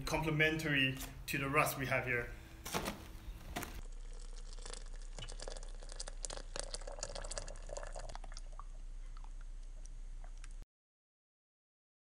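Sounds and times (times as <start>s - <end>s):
water pouring into mug: 3.8s - 10.6s.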